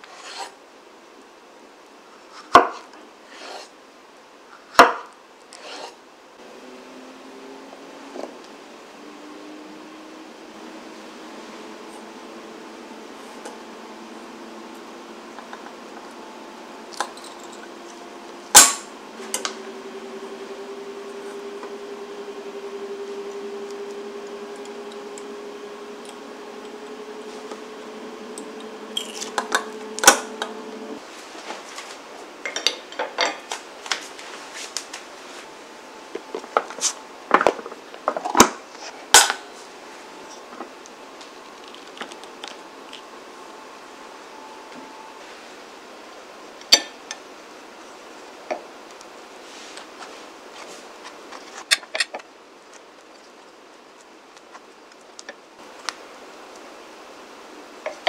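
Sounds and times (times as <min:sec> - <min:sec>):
steady hum rising in pitch: 0:06.4 - 0:31.2, 0:35.0 - 0:38.0, 0:38.7 - 0:49.5.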